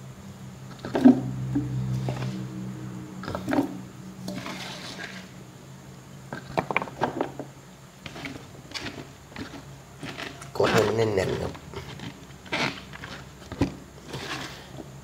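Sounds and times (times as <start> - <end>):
bamboo shoots crunching in jar: 8.0 - 14.8.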